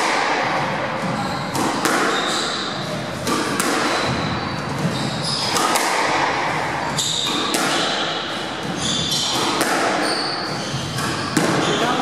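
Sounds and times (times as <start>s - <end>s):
squash ball knocking off walls: 0.0s - 12.0s
shoes squeaking on wooden floor: 1.0s - 3.2s, 3.8s - 5.7s, 6.5s - 12.0s.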